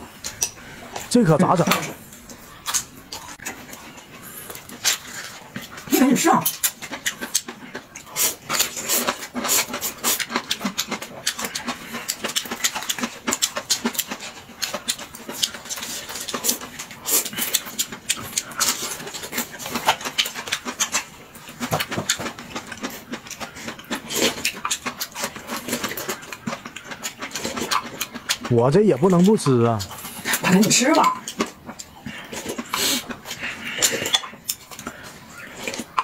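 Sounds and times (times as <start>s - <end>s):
chewing and smacking mouth: 0.0s - 36.0s
slurping noodles: 7.0s - 14.4s, 31.4s - 36.0s.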